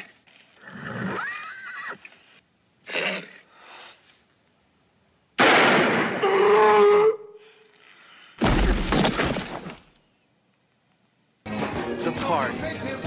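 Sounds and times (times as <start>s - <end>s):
horse whinnying: 0.6s - 2.1s, 2.8s - 3.4s
loud pistol shot: 5.4s - 6.2s.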